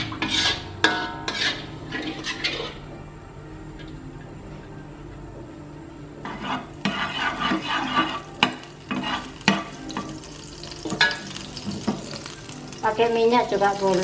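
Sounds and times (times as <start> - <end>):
spatula scraping pan: 0.0 - 3.0, 6.2 - 10.1
margarine sizzling in frying pan: 6.2 - 14.0.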